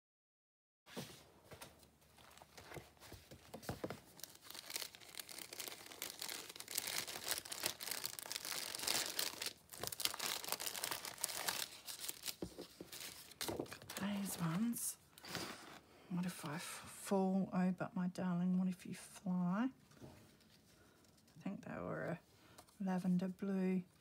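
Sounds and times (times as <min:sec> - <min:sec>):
plastic sleeves crinkling: 0:01.8 - 0:15.8.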